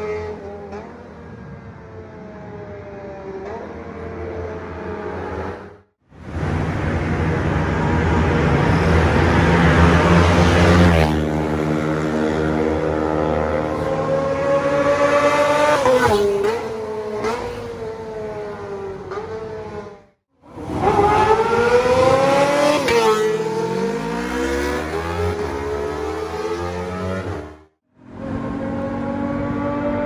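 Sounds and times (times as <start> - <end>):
motorcycle engine revving: 7.3 - 30.0.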